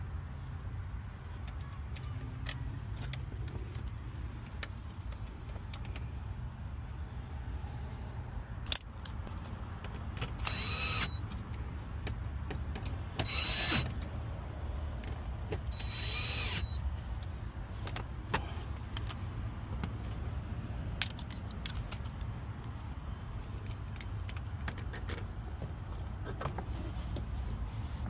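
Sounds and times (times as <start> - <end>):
cordless drill whirring: 10.4 - 11.2, 13.2 - 13.9, 15.7 - 16.8.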